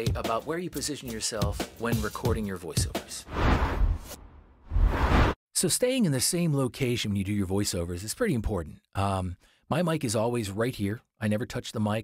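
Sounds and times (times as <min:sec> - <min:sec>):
whoosh: 0:03.3 - 0:05.4.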